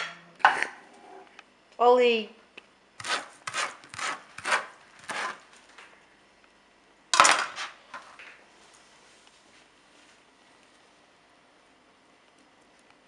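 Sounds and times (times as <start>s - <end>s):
kitchen utensil scraping: 3.0s - 5.4s, 7.2s - 8.2s.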